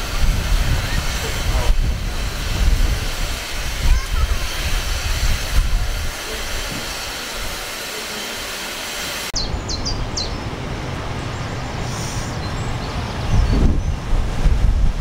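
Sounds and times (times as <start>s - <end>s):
wind rumbling on microphone: 0.0s - 7.6s, 9.4s - 15.0s
steam hissing loudly: 0.0s - 10.3s, 11.8s - 12.6s.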